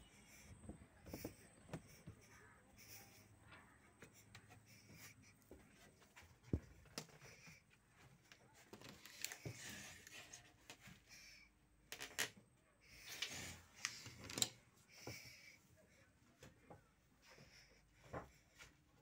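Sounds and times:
faint clicks and rubbing: 0.5 - 11.0.

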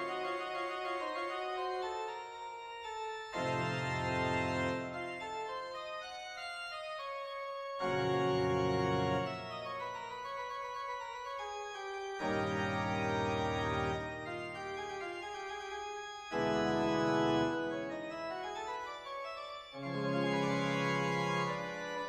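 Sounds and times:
organ chords: 0.0 - 22.0.

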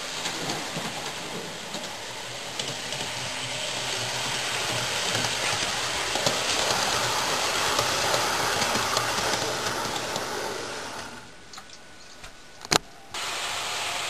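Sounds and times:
model train whirring: 0.0 - 11.3, 13.2 - 14.0.

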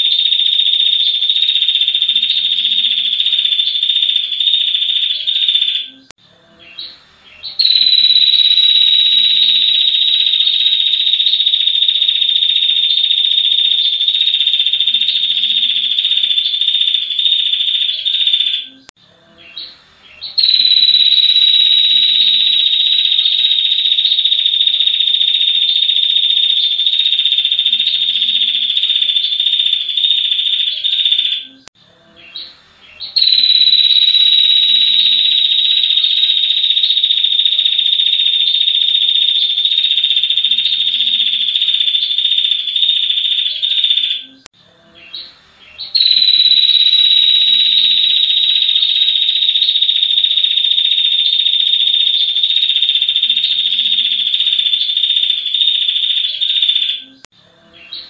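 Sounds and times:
bird long high trill: 6.8 - 18.9, 20.2 - 31.6, 33.0 - 44.4, 45.8 - 57.2.

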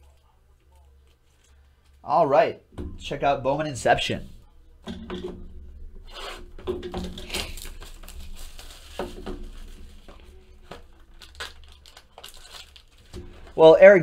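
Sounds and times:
shrink wrap crackling: 6.0 - 13.8.

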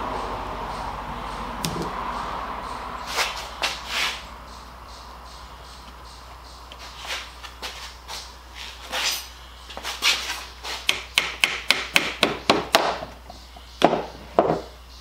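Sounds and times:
small hammer tapping wood: 10.9 - 13.0.

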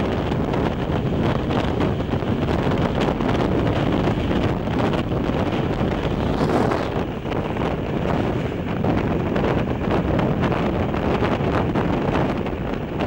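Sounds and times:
train running noise: 0.0 - 13.0
wind buffeting microphone: 0.0 - 13.0.

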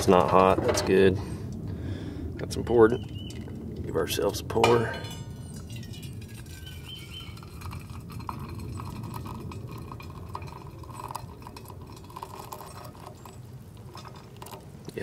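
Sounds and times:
coffee pouring into metal mug: 4.5 - 15.0.

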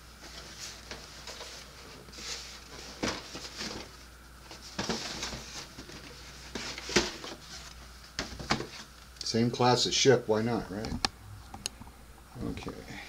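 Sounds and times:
cardboard box rustling and scraping: 4.6 - 7.7.

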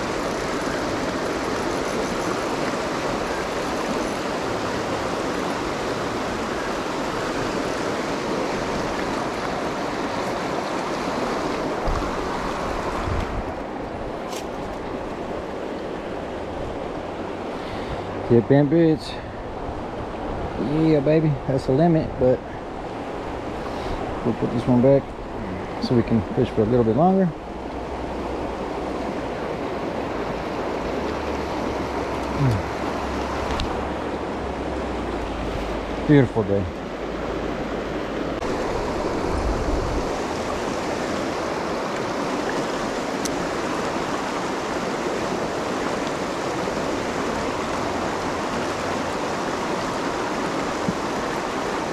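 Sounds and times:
river rushing over rocks: 0.0 - 51.9
low vocal grunt: 32.3 - 32.7.

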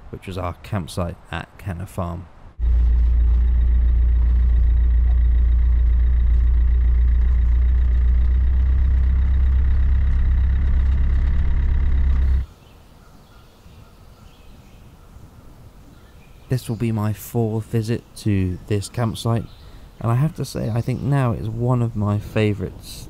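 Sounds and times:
vehicle engine droning: 2.6 - 12.5.

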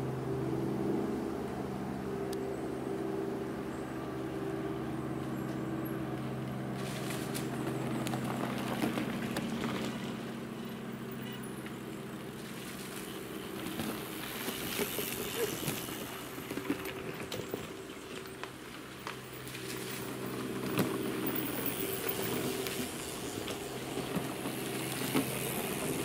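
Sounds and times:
low motor hum: 0.0 - 26.0
mountain bikes rattling and clicking: 5.2 - 26.0.

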